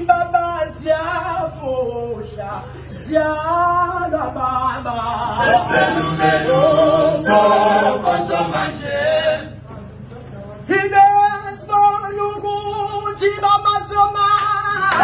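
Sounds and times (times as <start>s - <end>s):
male choir singing a cappella: 2.9s - 9.7s.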